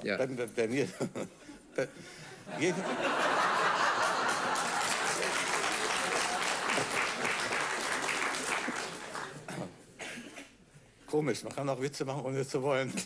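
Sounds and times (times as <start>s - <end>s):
studio audience applauding: 3.3s - 9.6s.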